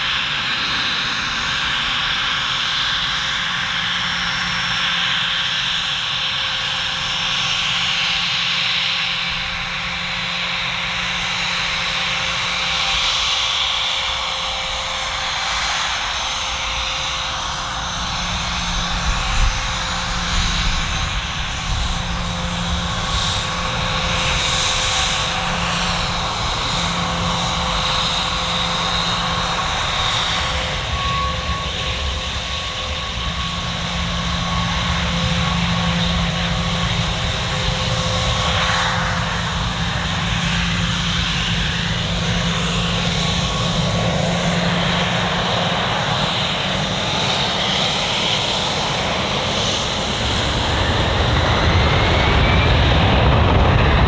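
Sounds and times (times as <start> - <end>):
jet engines whining: 0.0 - 54.0.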